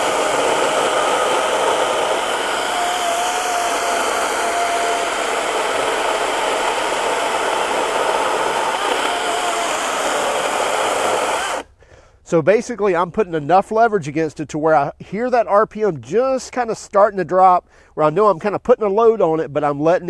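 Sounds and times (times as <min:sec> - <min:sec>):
chainsaw cutting through log: 0:00.0 - 0:11.7.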